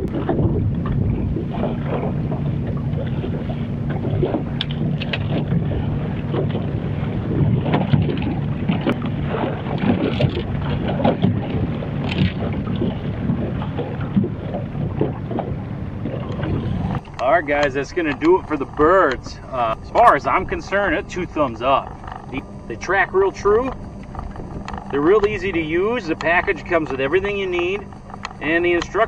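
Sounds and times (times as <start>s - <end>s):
boat motor humming: 0.0s - 29.0s
wind buffeting microphone: 0.0s - 29.0s.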